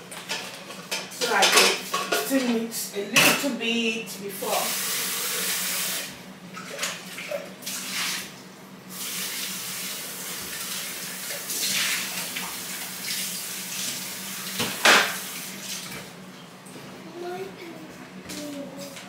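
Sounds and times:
tap water splashing into sink: 13.8s - 16.1s.

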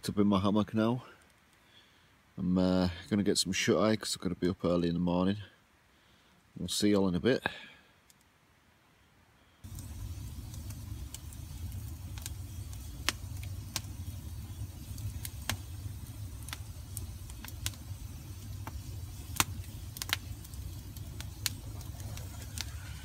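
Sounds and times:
campfire crackling and popping: 9.6s - 23.0s
fire low rumble: 9.6s - 23.0s.

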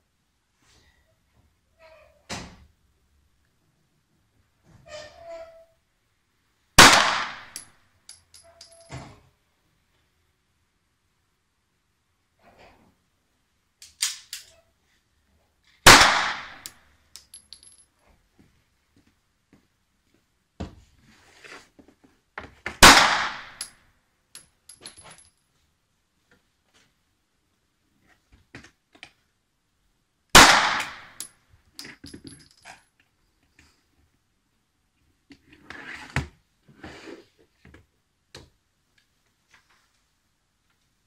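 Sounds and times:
pistol shots with echo: 6.8s - 7.6s, 15.9s - 16.7s, 22.8s - 23.7s, 30.4s - 31.3s
small clicks and clinks: 7.5s - 9.0s, 16.6s - 18.0s, 23.5s - 25.4s, 31.1s - 33.2s.

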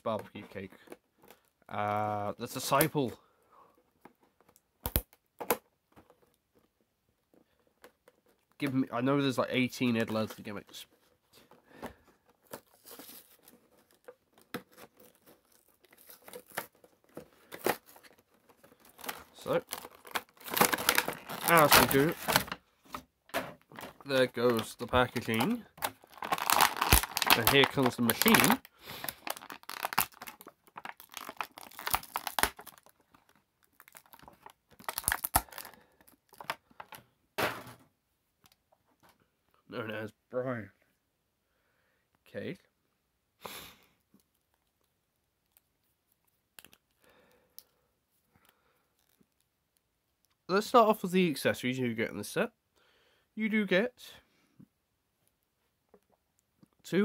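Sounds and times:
packaging tearing and crinkling: 12.5s - 22.6s, 23.6s - 36.6s.

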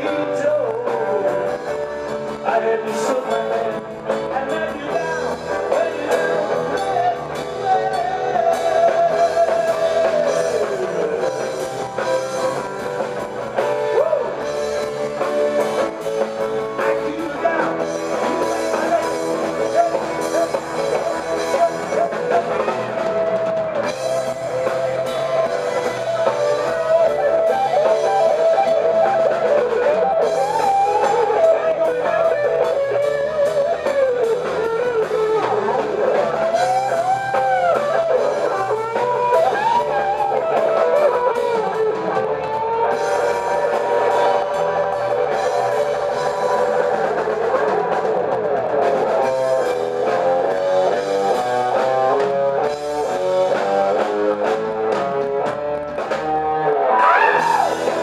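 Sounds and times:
drum kit: 0.0s - 58.0s
electric guitars: 0.0s - 58.0s
keyboards: 0.0s - 58.0s.

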